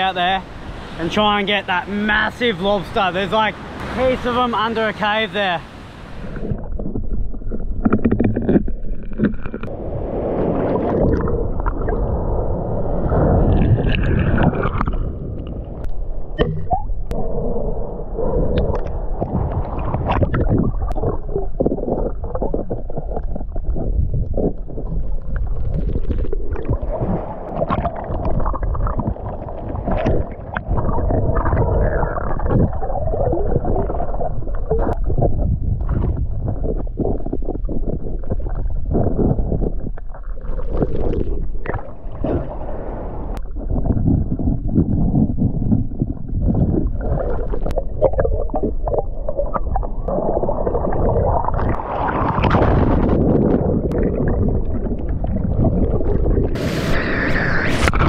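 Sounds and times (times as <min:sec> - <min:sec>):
underwater rush and gurgle: 0:00.0 - 0:58.0
small crackling clicks and knocks: 0:06.8 - 0:09.7.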